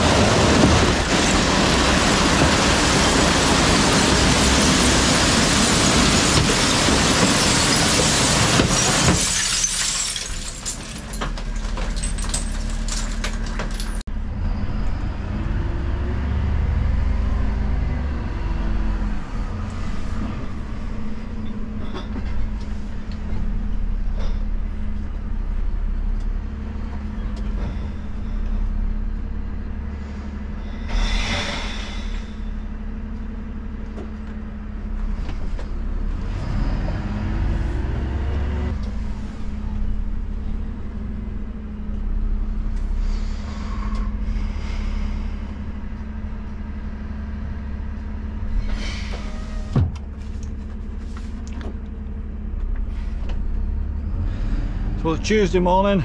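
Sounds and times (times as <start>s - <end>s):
truck engine running: 0.0s - 14.4s, 37.0s - 56.0s
glass bottles crashing: 4.1s - 14.1s.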